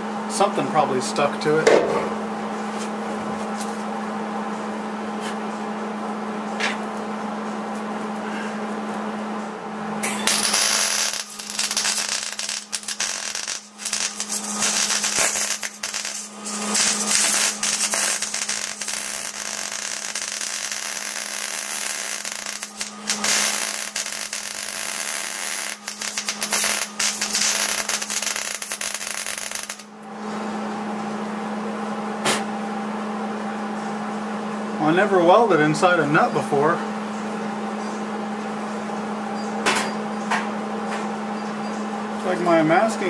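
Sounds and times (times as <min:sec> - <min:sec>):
steady hum: 0:00.0 - 0:43.0
welder arc crackling: 0:10.0 - 0:30.0.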